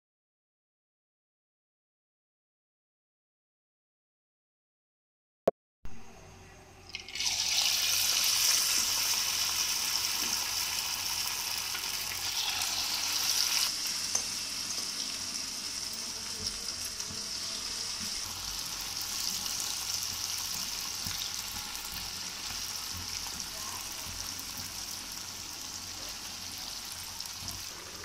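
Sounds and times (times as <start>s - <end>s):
deep-frying sizzle in oil: 6.9s - 28.0s.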